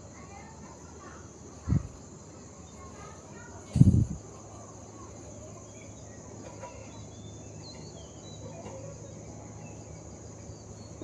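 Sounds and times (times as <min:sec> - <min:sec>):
high insect drone: 0:00.0 - 0:11.0
birds chirping: 0:04.6 - 0:11.0.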